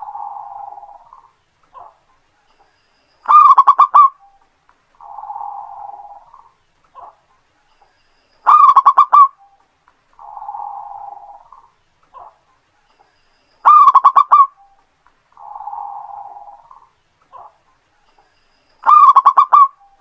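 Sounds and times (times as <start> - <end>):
dove cooing: 0.0 - 2.1, 3.3 - 4.4, 5.0 - 7.2, 8.5 - 9.6, 10.2 - 12.4, 13.6 - 14.8, 15.4 - 17.6, 18.8 - 20.0.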